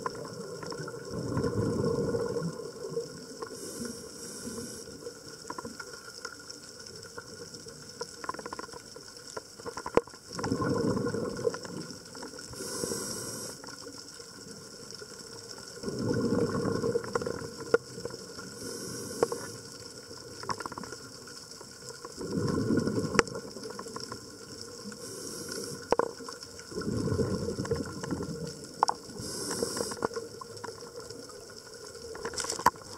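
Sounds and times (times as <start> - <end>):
rumble of exhaled bubbles: 0.0 - 5.9, 9.9 - 13.8, 14.4 - 32.9
regulator hiss on inhalation: 3.4 - 5.1, 12.5 - 13.9, 18.4 - 19.8, 24.8 - 26.2, 29.0 - 30.2
sharp clicks underwater: 3.4 - 13.8, 16.0 - 31.1, 32.0 - 32.9.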